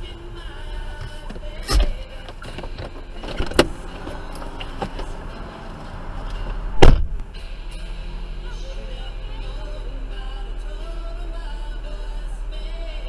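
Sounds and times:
car engine idling: 0.0s - 13.0s
car clunks and knocks: 0.9s - 7.4s
car door slamming: 1.0s - 5.2s, 6.3s - 7.3s.

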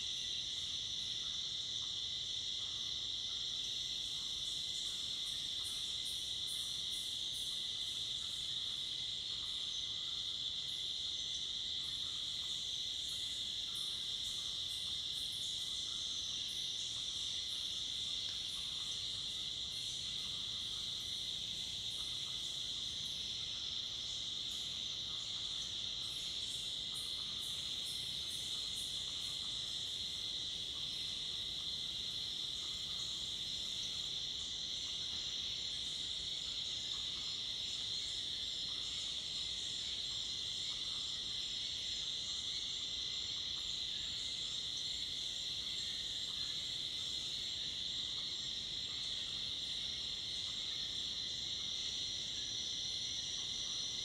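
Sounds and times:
crickets and cicadas trilling: 0.0s - 54.0s
fast-pulsing insect call: 0.0s - 54.0s.

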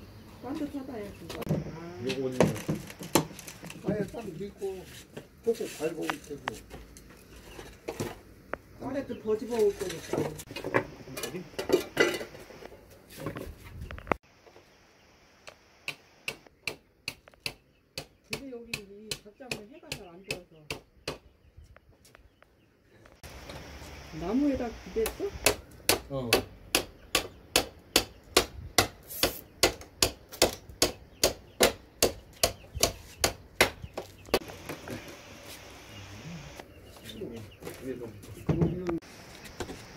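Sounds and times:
hammering: 25.0s - 34.8s.

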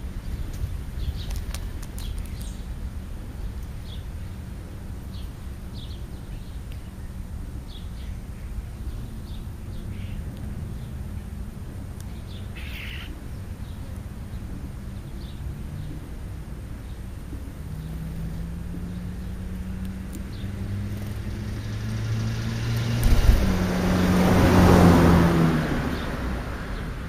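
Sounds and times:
birds chirping: 0.0s - 2.7s, 3.3s - 25.1s.

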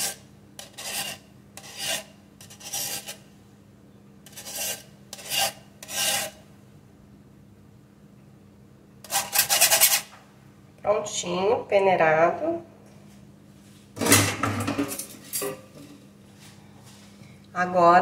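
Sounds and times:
spoon scraping through wire sieve: 0.0s - 3.2s, 4.3s - 6.4s, 9.1s - 10.1s.

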